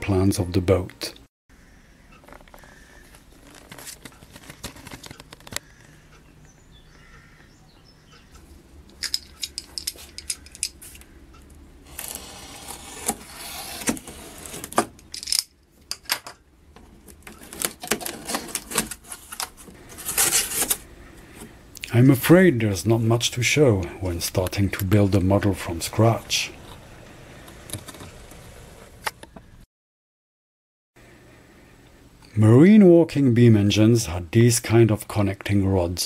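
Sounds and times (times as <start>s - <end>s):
cardboard handling clicks and scrapes: 2.2s - 5.6s, 11.9s - 15.0s, 16.8s - 21.5s, 26.6s - 29.2s
cardboard flap tearing open: 11.9s - 15.0s, 17.3s - 20.8s
knife slitting packing tape: 11.9s - 15.4s, 20.0s - 20.8s.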